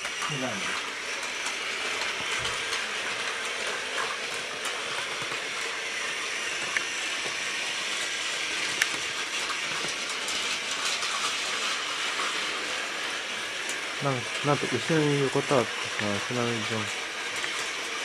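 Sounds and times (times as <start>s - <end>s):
toy train motors whirring: 0.0s - 18.0s.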